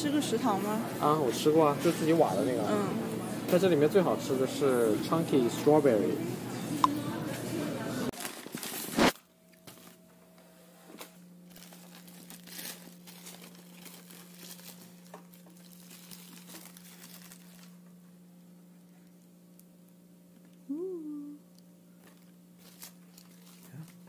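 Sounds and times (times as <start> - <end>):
loud shop noise: 0.0 - 9.2
foil and paper wrapping crinkling: 8.1 - 10.0, 11.0 - 17.9, 22.6 - 24.0
steady low hum: 9.0 - 24.0.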